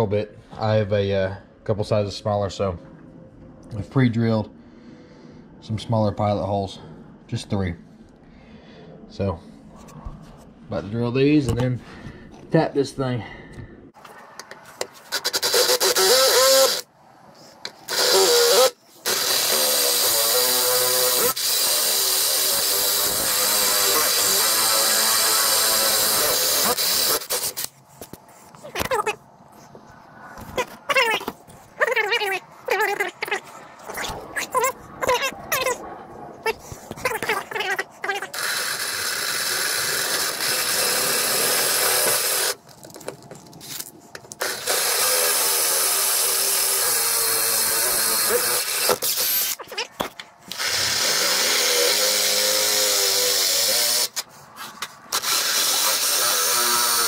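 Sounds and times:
electric drill boring metal: 15.1s - 16.9s, 17.9s - 27.7s, 37.0s - 42.6s, 44.4s - 49.6s, 50.5s - 54.2s, 55.1s - 57.0s.

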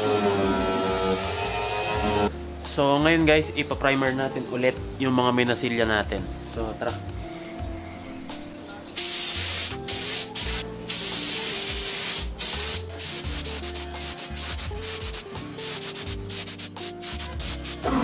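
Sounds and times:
background music: 0.0s - 18.0s
spray gun hissing bursts: 9.0s - 17.9s.

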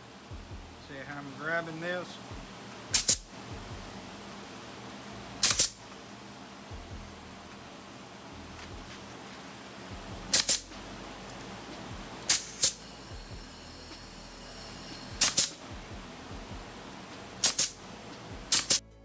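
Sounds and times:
pneumatic ring gun firing: 2.9s - 3.3s, 5.4s - 5.8s, 10.3s - 10.8s, 12.2s - 15.8s, 17.4s - 17.8s, 18.5s - 18.8s.

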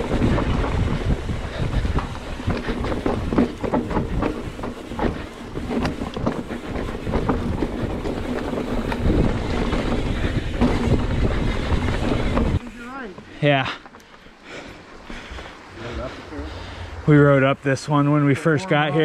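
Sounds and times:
wind rushing over microphone: 0.0s - 12.8s
bike rattling and knocking: 0.0s - 15.4s
tyres rumbling over dirt: 0.0s - 18.0s.

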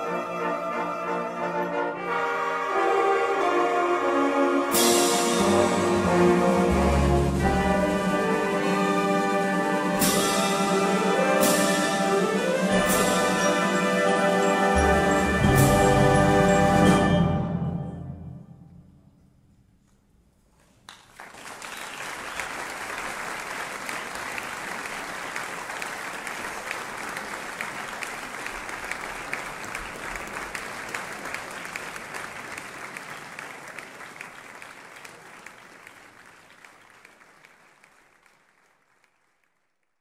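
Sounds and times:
audience applauding: 20.9s - 40.0s.

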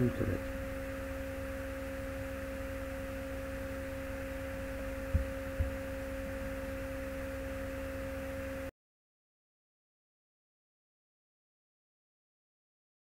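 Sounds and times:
electrical hum and hiss: 0.0s - 8.7s.

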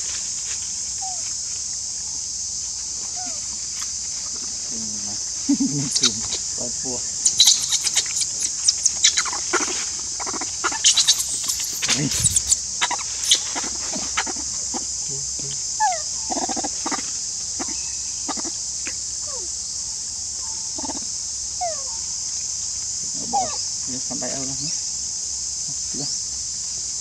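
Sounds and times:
insects droning: 0.0s - 27.0s
short falling squeaks: 7.3s - 9.4s, 10.7s - 13.8s.

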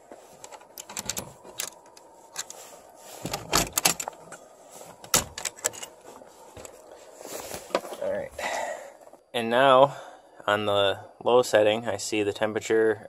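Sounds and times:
metal latch clinking and rattling: 0.5s - 2.5s, 3.3s - 4.3s, 5.0s - 6.0s.

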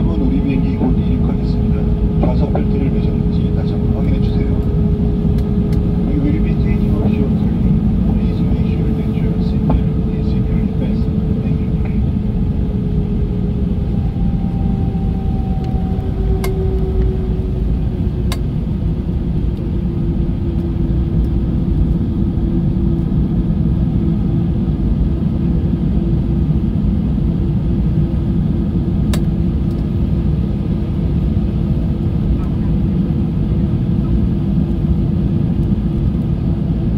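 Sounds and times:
humming tone: 0.0s - 26.2s
jet engines low rumble: 0.0s - 36.9s.

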